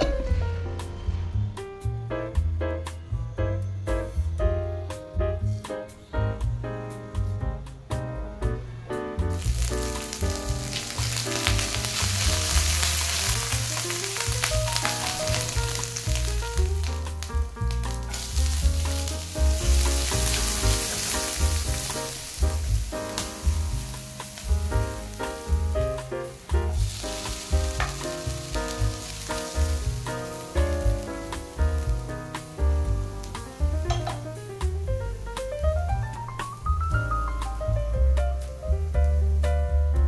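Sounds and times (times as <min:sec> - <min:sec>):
background music with bass line: 0:00.0 - 0:40.0
oil sizzling in a frying pan: 0:09.3 - 0:39.1.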